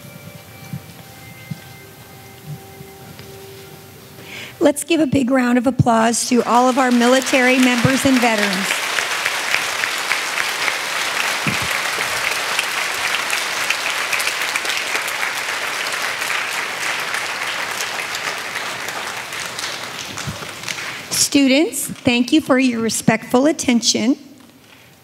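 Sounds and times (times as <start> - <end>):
audience applauding: 5.9 - 21.4.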